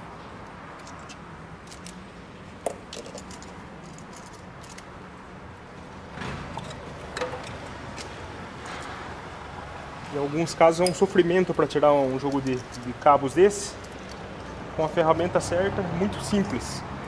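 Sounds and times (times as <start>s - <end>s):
pliers clicking and rattling: 0.7s - 2.0s, 2.7s - 4.9s, 12.2s - 13.0s.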